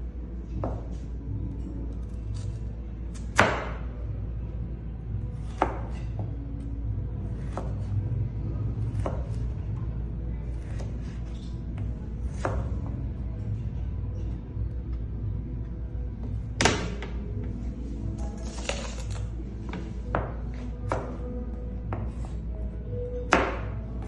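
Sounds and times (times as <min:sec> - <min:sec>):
steady low hum: 0:00.0 - 0:24.0
knife chopping on cutting board: 0:08.9 - 0:09.3.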